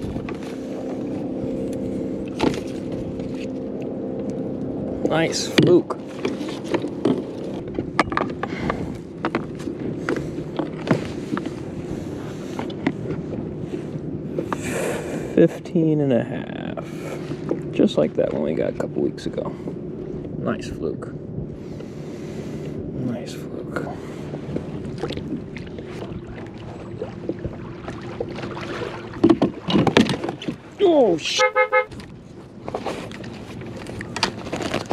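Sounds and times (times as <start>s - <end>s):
landing net and fish handled: 0.0s - 3.7s, 5.5s - 13.3s, 24.8s - 30.8s, 31.9s - 34.9s
water lapping against boat hull: 0.0s - 20.4s, 21.3s - 34.9s
steady low hum: 0.0s - 29.7s
knocks and taps on boat: 5.4s - 11.7s, 12.6s - 13.4s, 24.5s - 30.7s.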